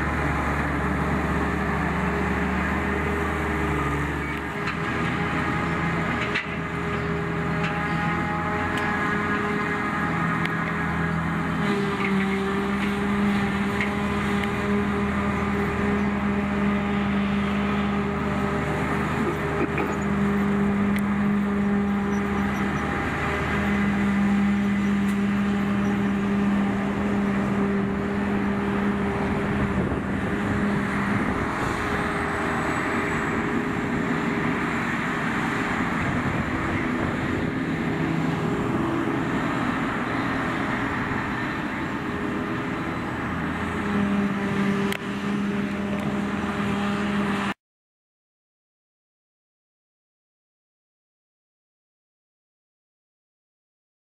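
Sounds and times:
machinery drone with steady hum: 0.0 - 47.6.

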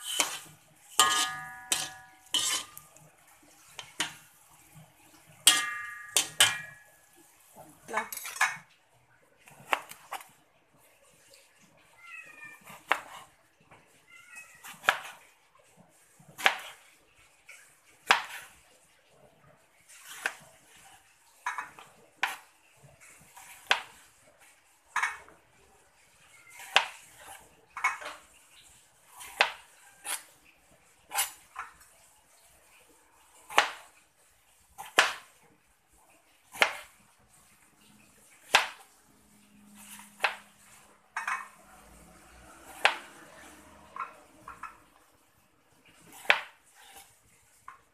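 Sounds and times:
knife slicing eggplant: 0.0 - 3.0, 9.4 - 10.3, 12.6 - 13.3, 14.6 - 15.3, 16.3 - 16.9, 18.0 - 18.6, 21.8 - 22.5, 26.5 - 27.4, 29.1 - 30.4, 33.5 - 33.9, 34.8 - 35.3, 36.5 - 37.0, 38.3 - 38.9, 39.8 - 40.8, 42.5 - 43.7, 46.0 - 47.2.

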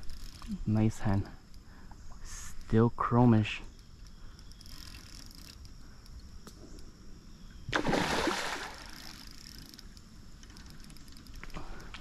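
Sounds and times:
fish splashing in water: 7.7 - 9.2.

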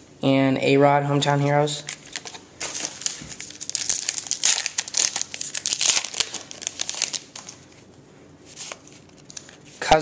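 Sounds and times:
wrapper crinkling and tearing: 1.8 - 7.9.

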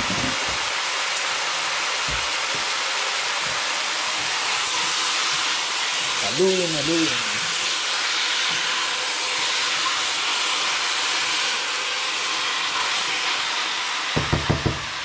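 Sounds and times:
chicken sizzling in hot oil: 0.0 - 15.0
spatula stirring in pot: 3.4 - 11.5.

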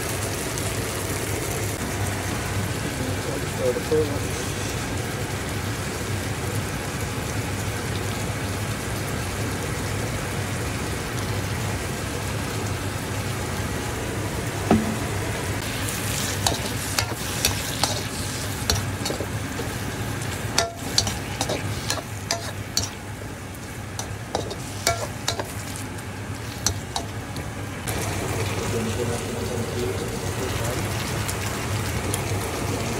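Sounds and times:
vegetables sizzling in oil: 0.0 - 32.9
spatula scraping a pan: 15.6 - 23.1, 24.0 - 25.8, 26.4 - 27.2.

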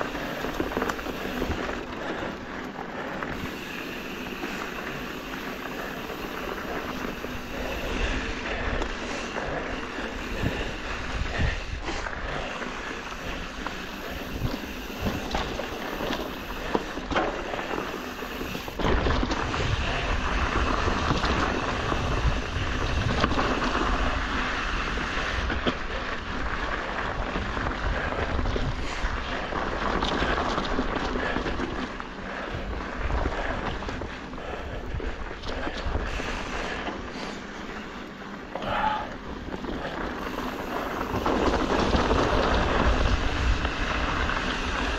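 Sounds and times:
bike tyre noise: 0.0 - 44.9
wind buffeting microphone: 3.3 - 37.1, 38.6 - 44.9
bike knocks and rattles: 13.7 - 24.2.

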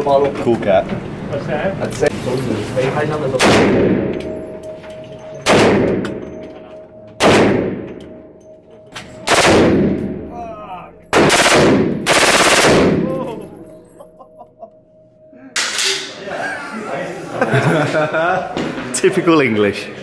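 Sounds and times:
pistol shots echoing indoors: 3.3 - 6.5, 7.2 - 10.4, 11.0 - 13.4
automatic rifle bursts: 11.2 - 13.0.

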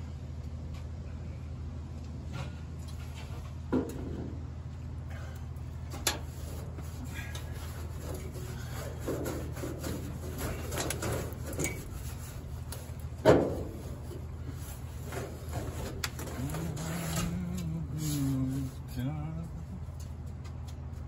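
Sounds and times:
steady low hum: 0.0 - 21.0
rag rubbing bare steel: 6.2 - 13.0.

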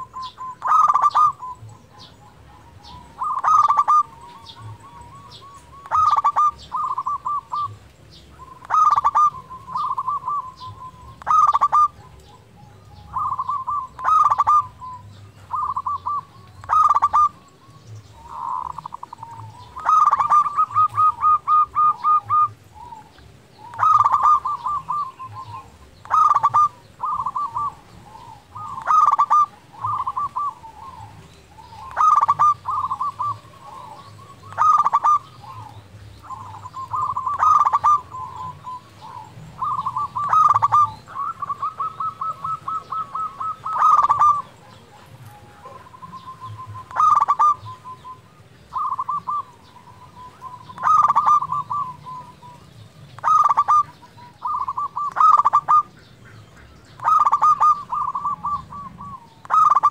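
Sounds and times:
dove cooing: 0.0 - 59.9.

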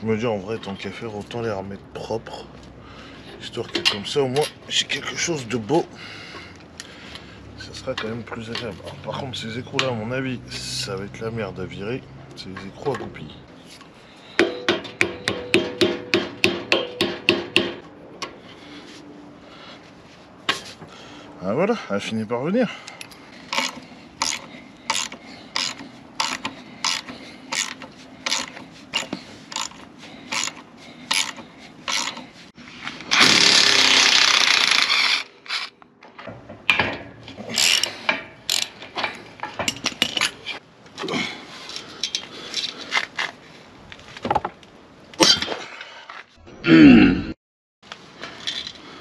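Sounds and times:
metal knocks: 14.4 - 17.8
ratchet wrench clicking: 23.5 - 32.2, 38.5 - 38.8.

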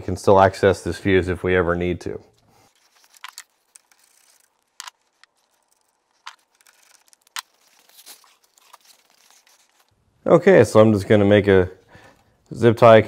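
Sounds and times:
hand tools clicking and rustling: 2.4 - 9.9.

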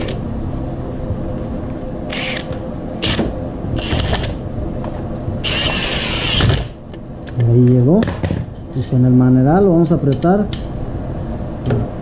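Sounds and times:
impact wrench bursts: 2.1 - 3.2, 5.4 - 6.8.

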